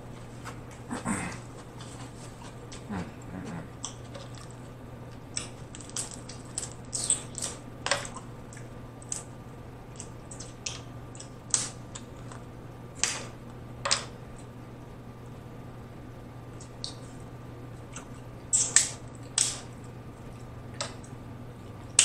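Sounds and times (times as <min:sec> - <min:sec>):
crab shells cracking: 0:03.8 - 0:09.3, 0:10.0 - 0:12.4, 0:18.0 - 0:20.0.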